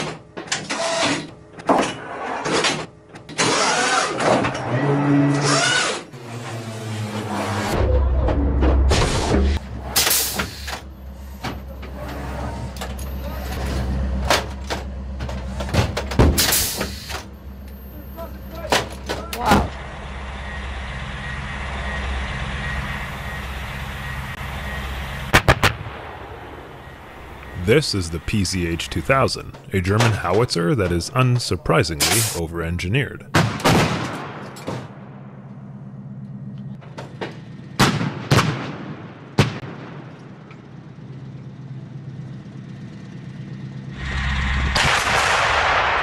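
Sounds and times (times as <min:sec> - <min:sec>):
engine running with low rumble: 0:00.0 - 0:46.0
low hum: 0:06.1 - 0:37.8, 0:39.0 - 0:46.0
sharp bangs: 0:25.3 - 0:35.2, 0:44.0 - 0:46.0
sharp loud bangs: 0:44.7 - 0:46.0.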